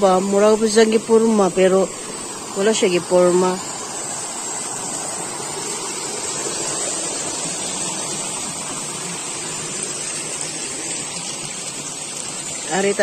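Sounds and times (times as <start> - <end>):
stream water rushing over rocks: 0.0 - 13.0.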